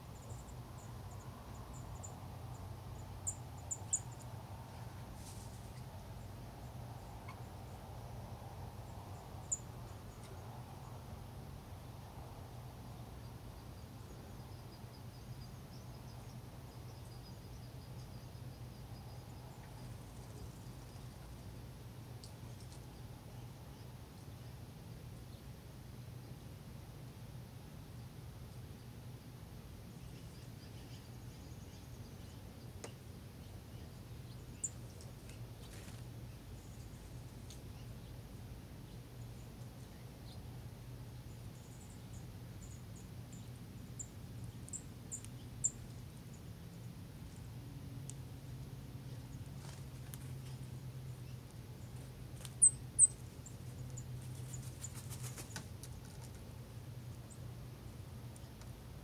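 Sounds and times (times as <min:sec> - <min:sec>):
small birds chirping: 0:00.0 - 0:11.2, 0:12.1 - 0:25.5, 0:28.5 - 0:59.0
steady low hum: 0:00.0 - 0:59.0
light ticks: 0:48.0 - 0:48.7.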